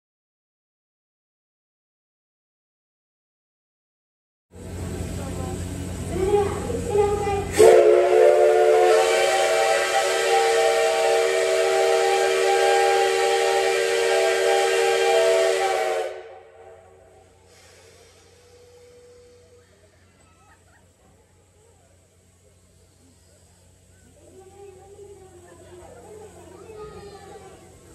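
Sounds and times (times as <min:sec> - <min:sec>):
steam hiss: 0:04.6 - 0:27.9
steam locomotive whistle: 0:06.2 - 0:19.8.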